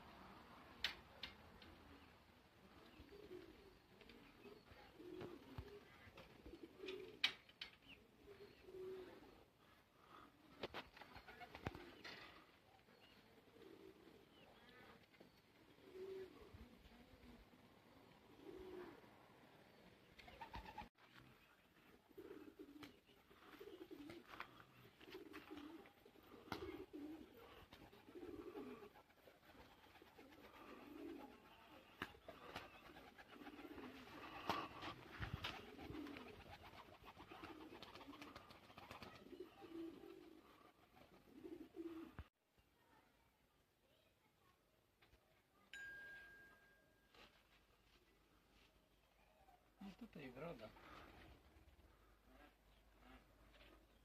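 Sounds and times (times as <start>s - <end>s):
pigeons cooing: 0.1s - 42.3s.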